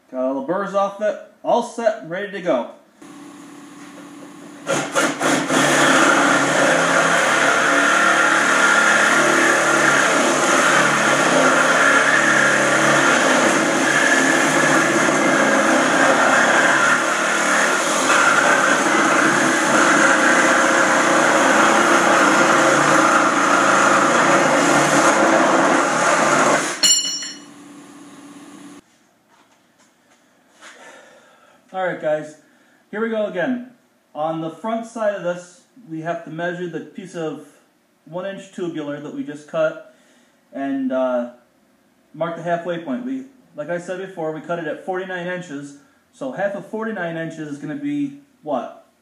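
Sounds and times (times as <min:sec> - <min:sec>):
power tool cutting steel: 0:04.6 - 0:27.4
metallic ring: 0:26.8 - 0:27.6.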